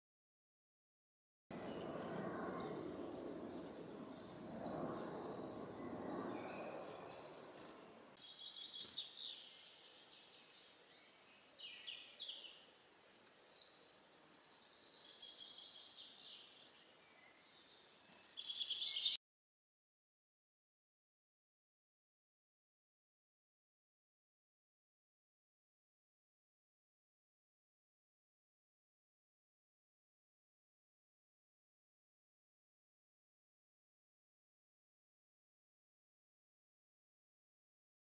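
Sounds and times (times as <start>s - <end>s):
woodland birds singing: 8.2s - 19.2s.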